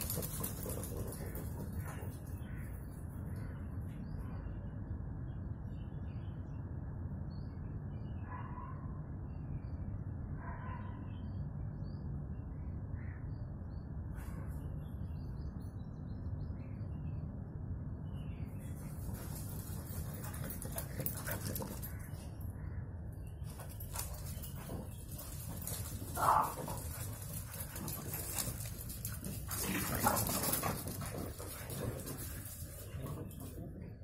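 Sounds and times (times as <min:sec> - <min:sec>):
birds chirping: 0:18.0 - 0:34.0.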